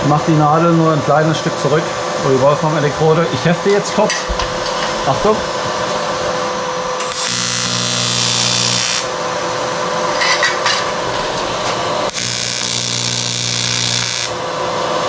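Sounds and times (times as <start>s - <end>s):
steady hum: 0.0s - 15.0s
welding arc buzzing: 3.7s - 15.0s.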